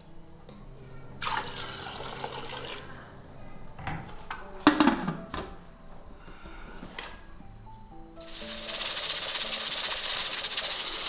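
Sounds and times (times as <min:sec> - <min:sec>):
water pouring: 0:01.2 - 0:03.0.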